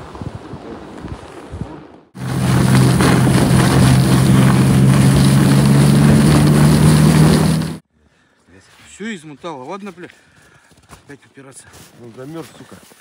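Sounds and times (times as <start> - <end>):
snowmobile engine droning: 2.2 - 7.8.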